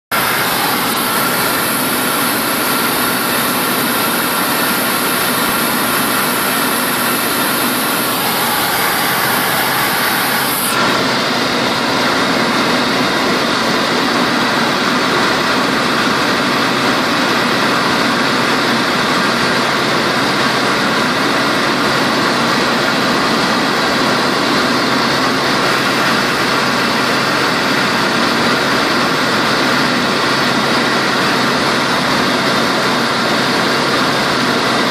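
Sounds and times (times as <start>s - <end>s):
aircraft engine drone: 0.1s - 16.5s
high hiss: 5.9s - 10.7s.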